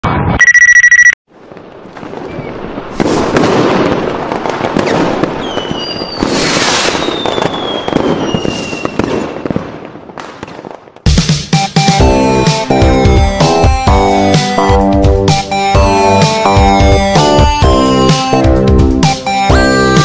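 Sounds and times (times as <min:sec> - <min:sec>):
short high beep: 0:00.4 - 0:01.2
fireworks crackling: 0:01.3 - 0:11.1
falling whistles: 0:05.4 - 0:09.0.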